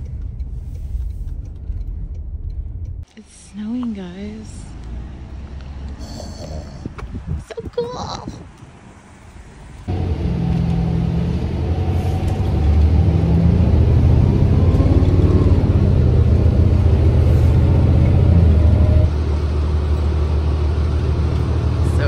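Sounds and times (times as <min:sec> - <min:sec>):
vehicle rumble with engine drone: 0:00.0 - 0:22.0.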